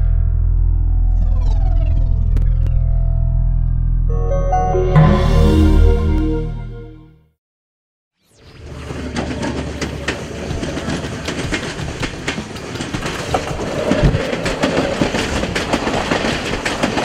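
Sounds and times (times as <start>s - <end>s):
train rumble: 8.9s - 17.0s
train wheels clacking: 9.2s - 17.0s.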